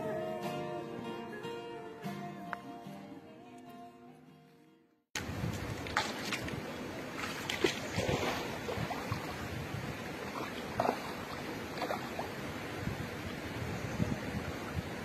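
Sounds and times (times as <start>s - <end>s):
water sloshing and splashing: 5.2s - 13.6s
river water running: 5.2s - 15.0s.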